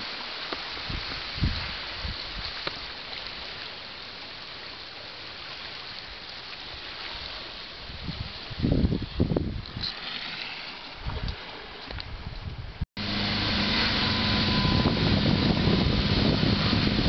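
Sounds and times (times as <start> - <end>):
sea waves washing against rocks: 0.0 - 12.1
low rumbles: 12.7 - 17.0.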